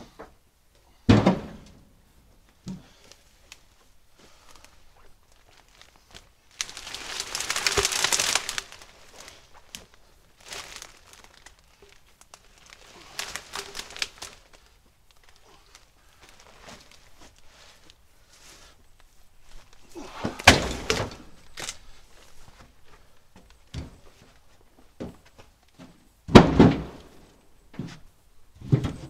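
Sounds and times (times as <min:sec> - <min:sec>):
branches rustling and crackling: 0:02.4 - 0:25.8
footsteps in leaf litter: 0:04.3 - 0:18.8.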